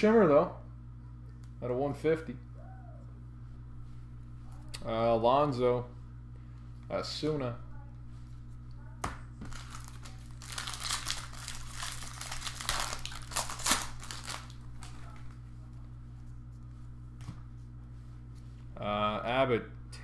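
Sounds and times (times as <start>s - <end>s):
foil wrapper crinkling and tearing: 9.5s - 15.4s.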